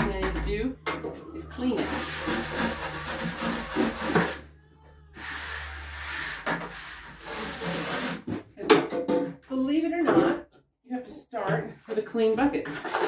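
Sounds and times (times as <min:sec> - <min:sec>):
hose spraying into plastic bucket: 0:01.7 - 0:04.4, 0:05.2 - 0:08.3, 0:12.7 - 0:13.0.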